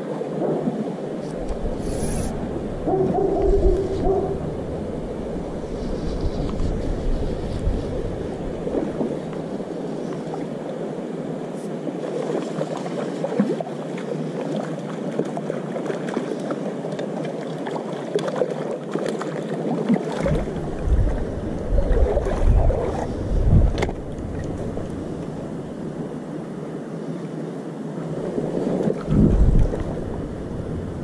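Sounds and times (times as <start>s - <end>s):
low microphone rumble: 1.2s - 9.7s, 20.3s - 26.1s, 28.2s - 31.0s.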